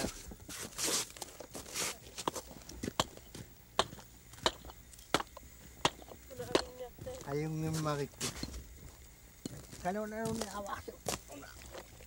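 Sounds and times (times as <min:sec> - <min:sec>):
hatchet chopping: 0:03.8 - 0:06.1.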